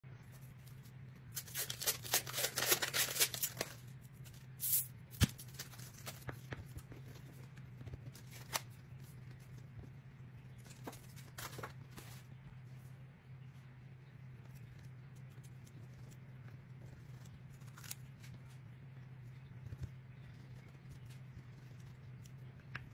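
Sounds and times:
paper wrapper tearing: 0:00.6 - 0:06.4, 0:08.1 - 0:08.8.

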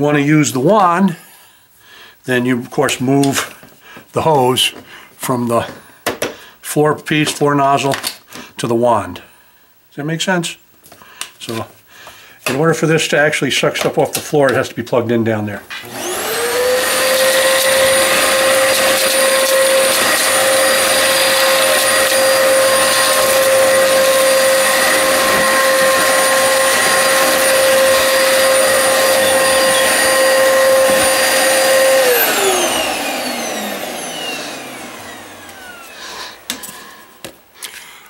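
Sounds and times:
vacuum cleaner whining: 0:15.7 - 0:37.4.

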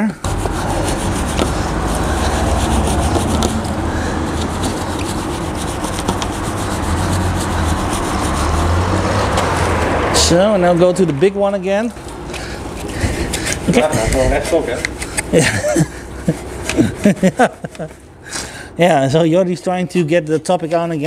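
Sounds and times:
brush bristles rubbing on metal: 0:00.2 - 0:10.3, 0:11.4 - 0:18.0.

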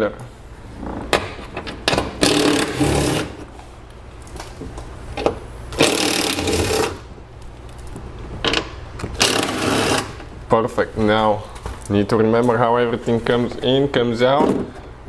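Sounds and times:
cordless power tool spinning: 0:05.8 - 0:07.0, 0:09.2 - 0:10.2.

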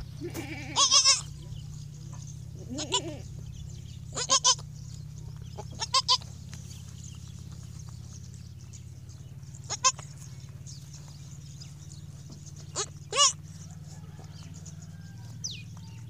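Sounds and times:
goat kid bleating: 0:00.0 - 0:01.7, 0:02.5 - 0:06.6, 0:09.5 - 0:10.3, 0:12.6 - 0:13.5.

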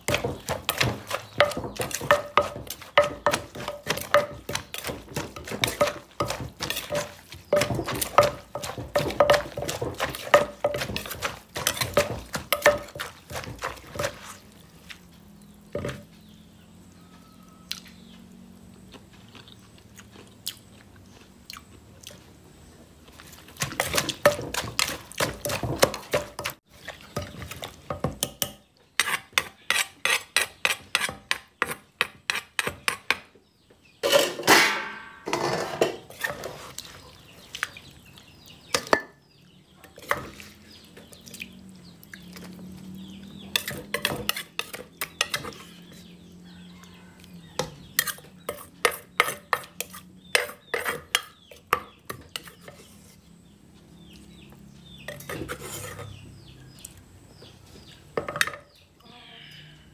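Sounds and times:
pestle pounding in clay mortar: 0:00.0 - 0:14.4, 0:23.6 - 0:26.6
spoon scraping: 0:00.0 - 0:15.0, 0:23.2 - 0:33.0, 0:34.0 - 0:37.0, 0:43.5 - 0:46.1, 0:47.8 - 0:53.3, 0:55.1 - 0:56.3.

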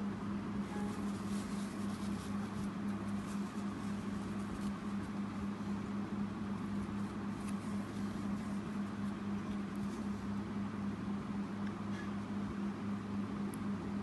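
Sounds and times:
room hiss: 0:00.0 - 0:11.1
low electrical hum: 0:00.0 - 0:14.0
faint ticks and scratches: 0:00.7 - 0:05.8, 0:06.5 - 0:10.3.

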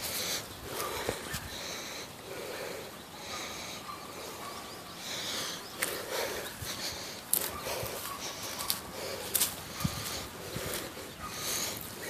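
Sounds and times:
breathing close to microphone: 0:00.0 - 0:12.0
rustling through tall grass: 0:05.7 - 0:12.0.

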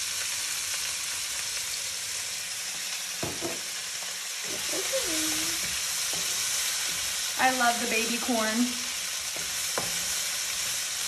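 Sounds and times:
vegetables sizzling in a wok: 0:00.0 - 0:11.0
wooden spatula stirring: 0:09.2 - 0:10.9.

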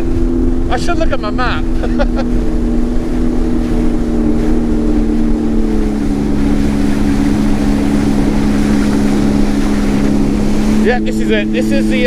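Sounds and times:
personal watercraft engine running: 0:00.0 - 0:12.0
water rushing past hull: 0:00.0 - 0:12.0.

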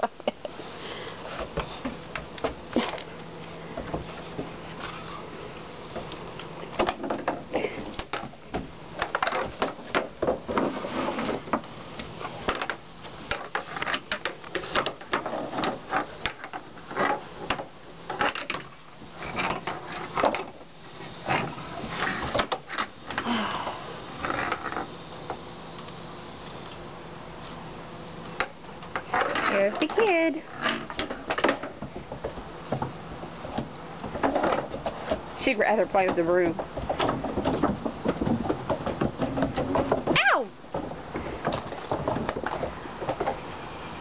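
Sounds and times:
broom scraping on wooden deck: 0:10.4 - 0:11.6.

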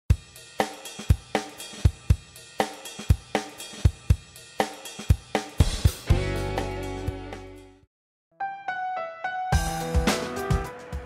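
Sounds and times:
drum kit beat with cymbals: 0:00.1 - 0:07.8, 0:09.5 - 0:11.0.

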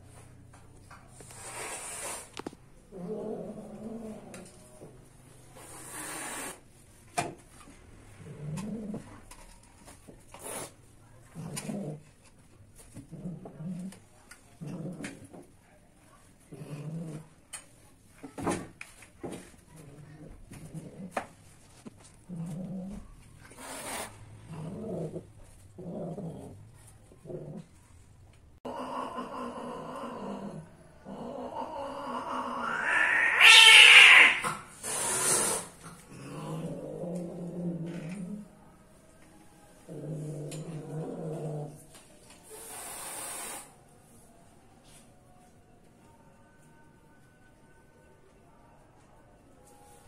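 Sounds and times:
cat moaning calls: 0:31.1 - 0:34.5.

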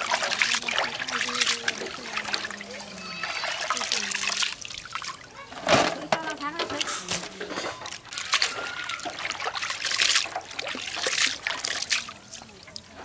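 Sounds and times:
hands swishing in water basin: 0:00.0 - 0:02.8, 0:06.8 - 0:12.8.

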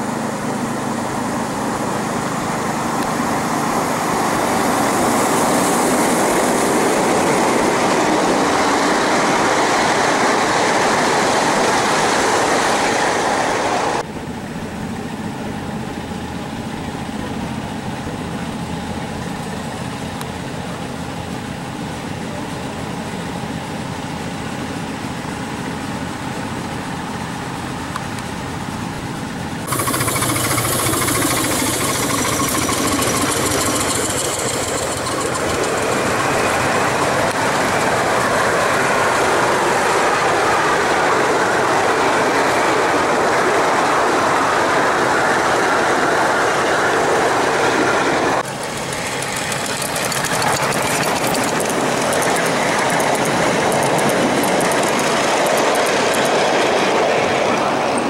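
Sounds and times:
model train running on track: 0:00.0 - 0:58.0.

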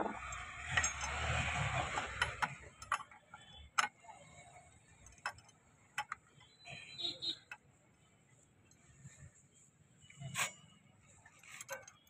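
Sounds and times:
metal clicks and clinks: 0:00.2 - 0:04.2, 0:04.8 - 0:06.5, 0:11.4 - 0:12.0.

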